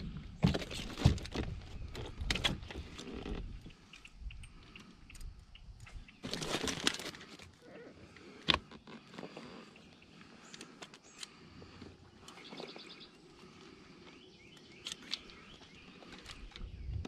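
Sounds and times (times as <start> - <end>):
net rustling and rattling: 6.2 - 7.6.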